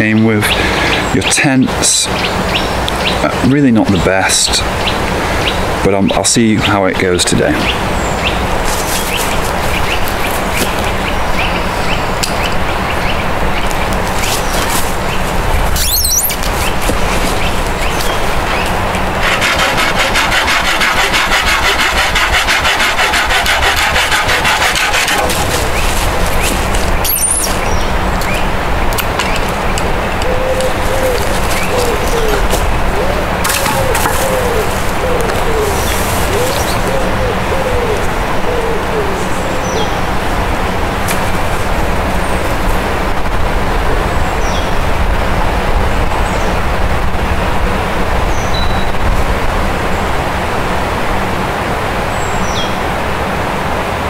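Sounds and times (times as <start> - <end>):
rushing noise with low rumble: 7.4 - 20.2, 23.6 - 54.0
small bird calling: 7.6 - 28.5, 29.3 - 40.0
hand saw cutting wood: 15.8 - 27.2, 33.4 - 36.9.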